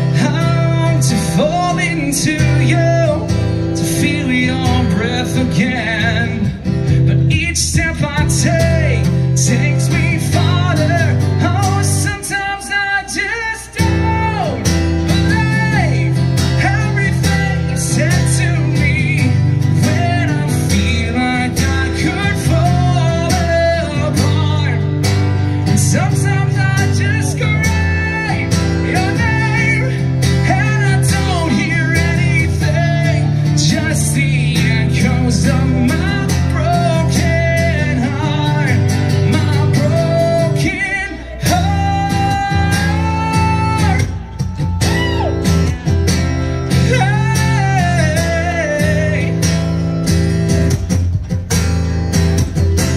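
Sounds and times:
man singing through a pa: 0.0s - 25.0s, 25.7s - 45.3s, 46.8s - 49.4s
amplified acoustic guitar strumming: 0.0s - 52.9s.

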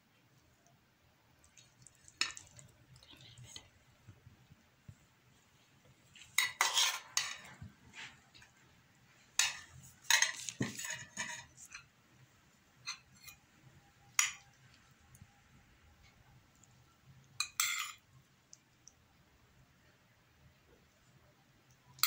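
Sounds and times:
cutlery clinking on a plate: 6.3s - 7.6s, 9.4s - 11.9s, 14.1s - 14.6s, 17.4s - 18.0s.

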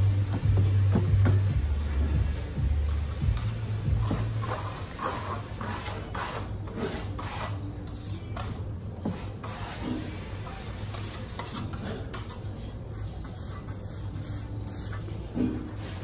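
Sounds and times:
steel trowel scraping plaster: 4.1s - 16.0s.

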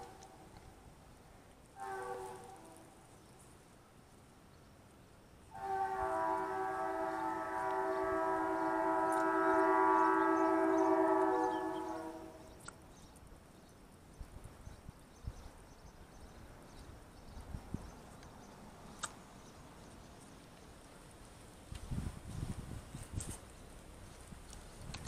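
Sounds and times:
locomotive air horn: 1.8s - 3.0s, 5.5s - 12.5s.

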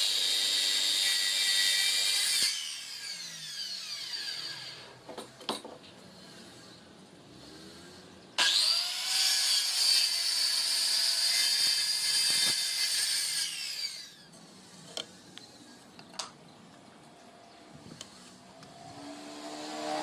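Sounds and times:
circular saw cutting wood: 0.0s - 5.0s, 6.1s - 15.2s, 17.9s - 20.0s.

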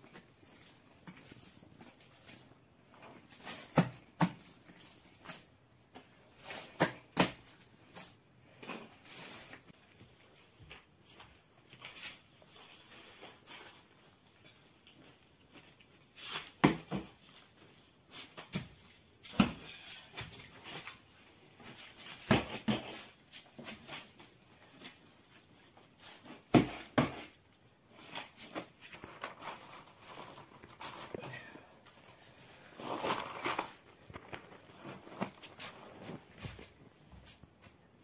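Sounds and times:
cloth and paper rustling: 27.9s - 37.9s.

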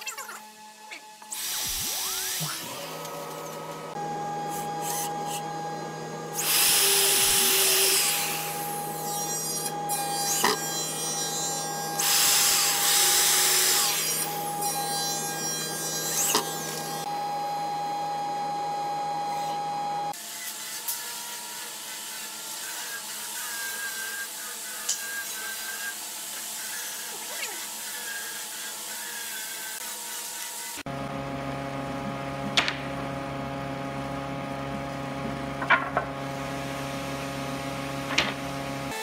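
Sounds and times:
electric drill boring into wood: 1.2s - 17.1s, 20.1s - 30.9s.

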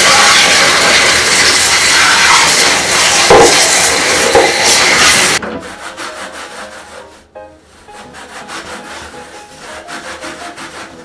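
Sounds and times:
hose spraying water: 0.0s - 5.4s
scrubbing pad on metal drum: 0.0s - 11.0s.

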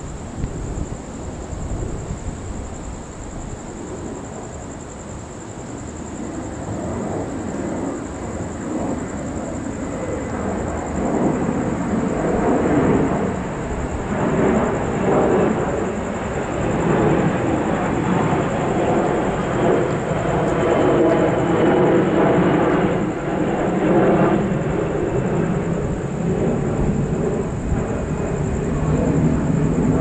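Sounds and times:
thunder rumbling: 10.3s - 30.0s.

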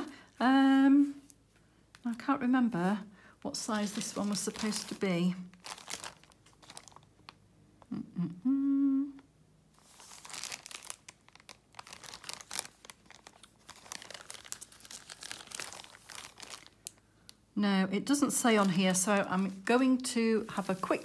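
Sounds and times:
plastic bag crinkling: 3.5s - 7.4s, 9.8s - 17.4s, 18.2s - 21.0s
woman humming: 7.9s - 9.3s.

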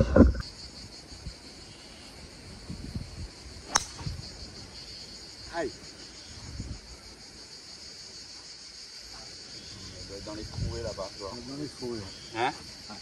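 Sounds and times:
insects chirring: 0.0s - 13.0s
golf club striking ball: 3.7s - 4.2s.

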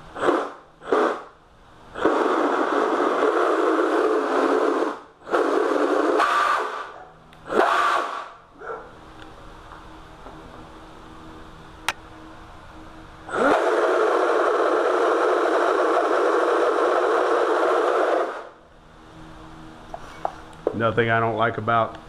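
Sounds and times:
electric motor revving: 0.2s - 1.3s, 1.9s - 8.4s, 13.3s - 18.6s.

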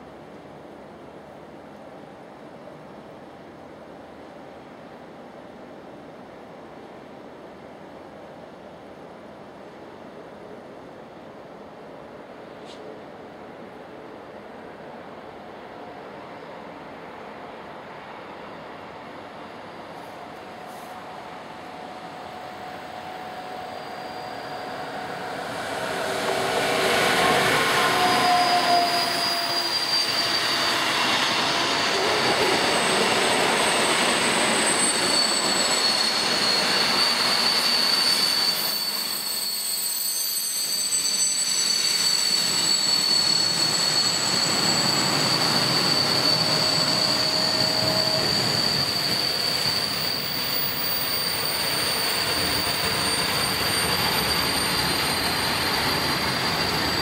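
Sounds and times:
electric locomotive passing: 8.5s - 57.0s
wheels rumbling on rail: 19.1s - 39.1s, 41.6s - 57.0s
high-pitched squeal: 20.7s - 57.0s.

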